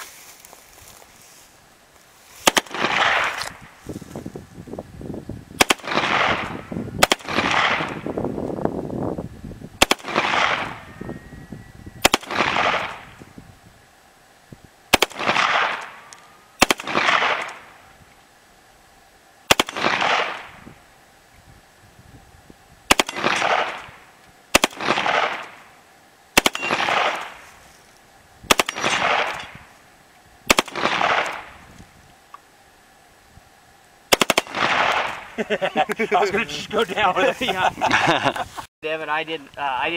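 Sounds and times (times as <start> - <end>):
suppressed pistol shots: 2.4 - 3.6, 5.6 - 8.0, 9.8 - 10.9, 12.0 - 13.1, 14.9 - 17.8, 19.5 - 20.6, 22.9 - 25.6, 26.4 - 27.4, 28.5 - 29.6, 30.5 - 31.6, 34.1 - 35.3.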